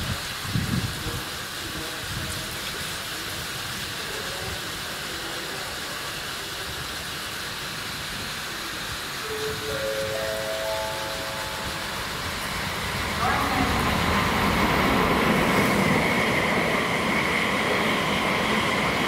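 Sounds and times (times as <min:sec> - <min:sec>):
water sprinklers hissing: 0:00.0 - 0:19.0.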